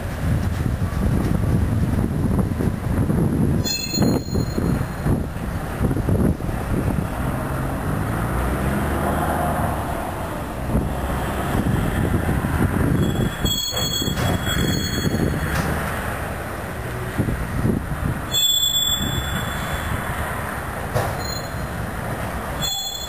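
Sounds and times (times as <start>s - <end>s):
train cars knocking and clattering: 0.0s - 5.8s, 12.9s - 16.3s, 20.8s - 23.0s
train wheels rumbling on rail: 0.0s - 23.0s.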